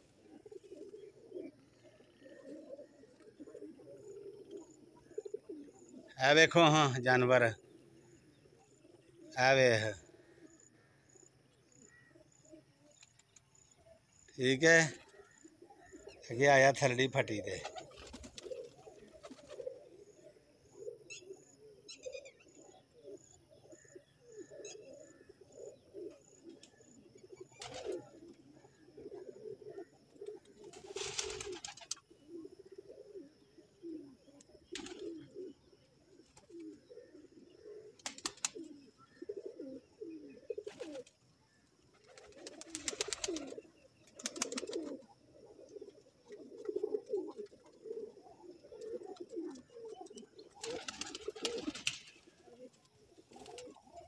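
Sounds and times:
pigeons cooing: 0.0s - 54.0s
wings flapping: 17.6s - 19.8s, 27.6s - 28.1s, 30.2s - 32.1s, 34.8s - 35.2s, 38.0s - 38.8s, 40.6s - 41.1s, 41.9s - 45.0s, 50.5s - 53.9s.

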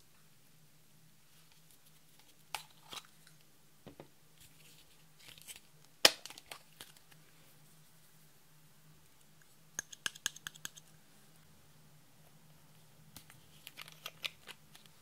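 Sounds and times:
plastic cup crinkling and clicking: 13.2s - 15.0s.

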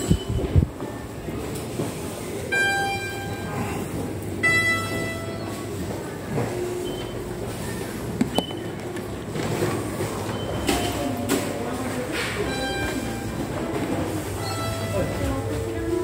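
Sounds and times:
electric train rumbling: 0.0s - 16.0s
two-note announcement chime: 14.4s - 15.9s.

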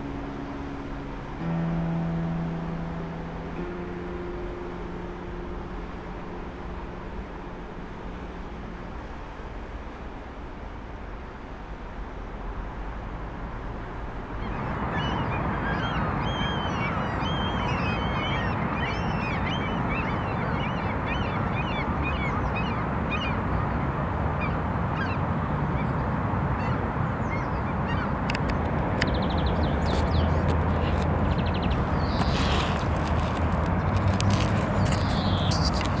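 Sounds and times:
waterbirds calling: 14.3s - 36.0s.

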